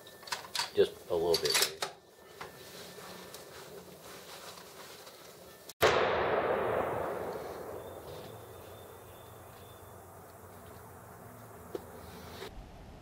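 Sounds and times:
rifle shot: 5.8s - 9.5s.

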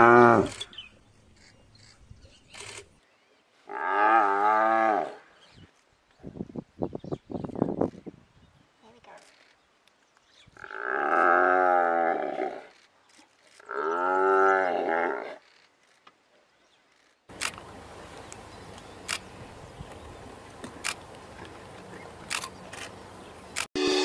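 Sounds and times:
sharp clicks: 1.4s - 2.9s, 17.3s - 17.7s, 22.3s - 23.0s.

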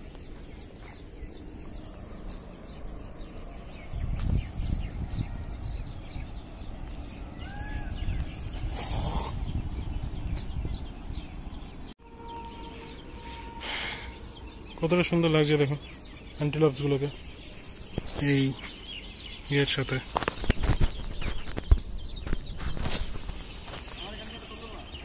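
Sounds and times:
low rumble on microphone: 0.0s - 11.9s
small birds chirping: 0.0s - 25.0s.

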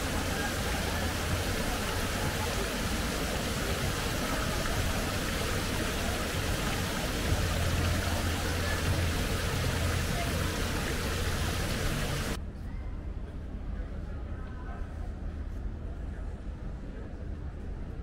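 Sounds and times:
indistinct voices: 0.0s - 12.4s
traffic noise: 0.0s - 12.4s.

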